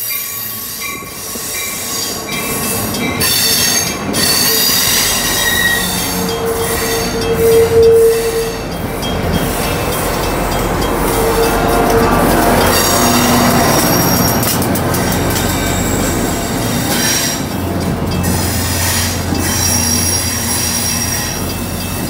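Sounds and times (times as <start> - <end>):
diesel locomotive rumble: 0.0 - 22.0
train wheels rolling: 0.0 - 22.0
wheel flange squeal: 3.2 - 8.7, 18.3 - 21.6.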